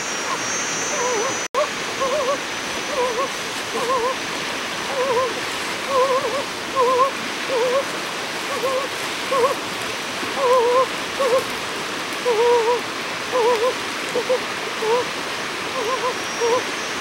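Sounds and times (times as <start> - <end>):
warbling whistle-like notes: 0.0 - 4.2
flowing water rushing: 0.0 - 17.0.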